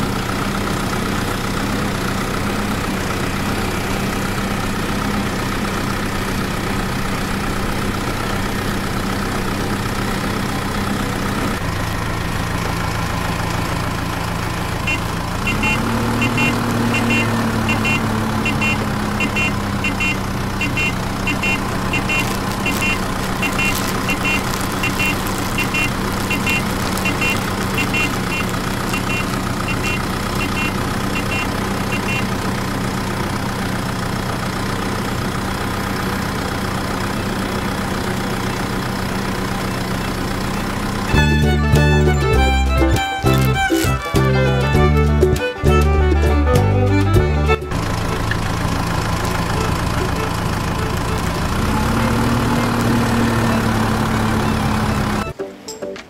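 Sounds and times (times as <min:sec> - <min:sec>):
light regular ticking: 0:14.8 - 0:32.2
toy motor humming: 0:41.1 - 0:44.8
music: 0:41.1 - 0:47.8, 0:55.2 - 0:56.0.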